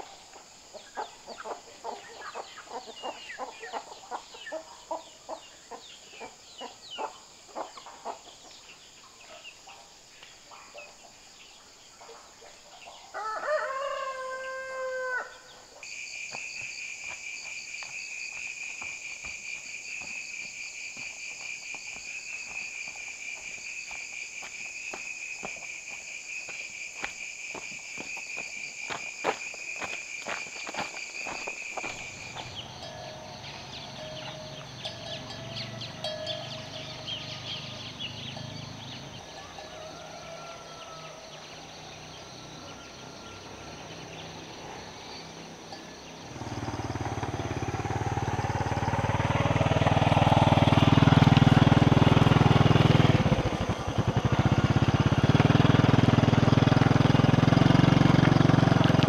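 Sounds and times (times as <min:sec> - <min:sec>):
high insect chorus: 0:00.0 - 0:59.0
chickens clucking: 0:00.7 - 0:08.4
rooster crowing: 0:13.1 - 0:15.5, 0:39.2 - 0:41.7.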